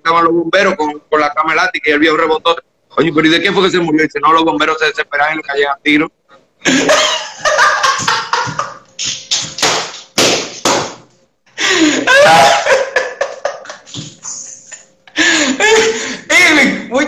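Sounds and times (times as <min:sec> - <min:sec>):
men laughing hard: 0:06.6 - 0:09.0, 0:11.6 - 0:16.1
hand slapping a desk: 0:06.8 - 0:11.1.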